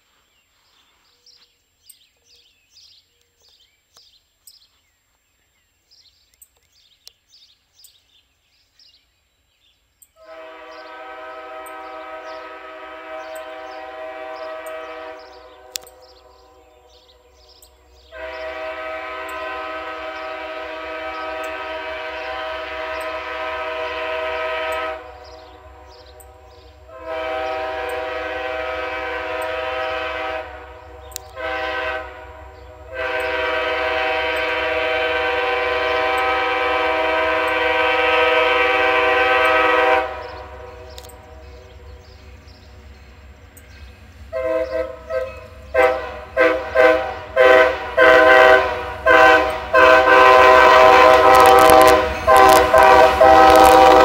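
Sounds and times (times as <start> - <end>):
locomotive air horn blasts: 10.2 - 42.5, 44.3 - 54.0.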